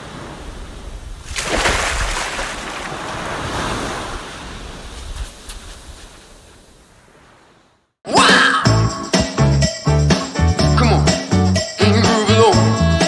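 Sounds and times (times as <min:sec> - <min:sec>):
ocean wave breaking: 0:00.0 - 0:07.8.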